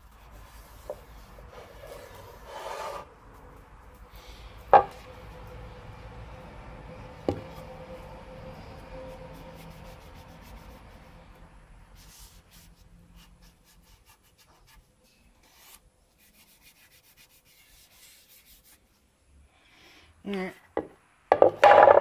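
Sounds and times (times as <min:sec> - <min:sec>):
cloth rubbing on wood: 0:00.0 - 0:03.6.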